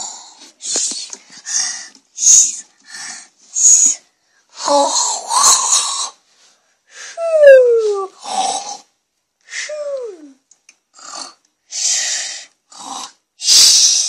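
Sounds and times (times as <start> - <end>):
child making breathing noises: 0.0 - 6.2, 7.0 - 8.8, 9.5 - 10.4, 11.0 - 12.5
child moaning: 4.6 - 5.9, 7.2 - 8.4, 9.5 - 10.4.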